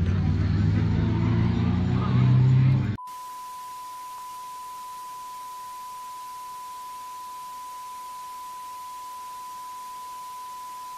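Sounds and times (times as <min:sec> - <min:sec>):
steady electronic test tone: 0:03.0 - 0:10.9.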